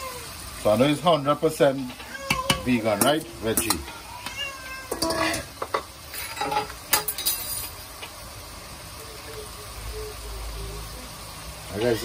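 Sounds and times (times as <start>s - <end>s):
metal spoon clinking and scraping pot: 1.8s - 4.1s, 4.8s - 7.8s.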